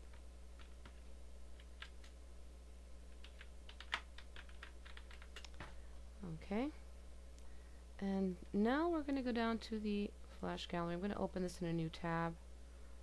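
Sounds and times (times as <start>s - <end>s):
computer keyboard typing: 0.0s - 1.0s, 1.6s - 2.2s, 3.1s - 5.6s.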